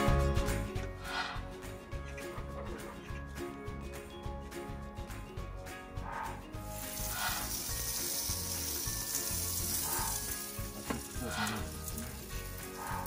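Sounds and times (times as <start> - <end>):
soft background music: 0.0 - 13.0
dough sizzling on grill: 6.6 - 13.0.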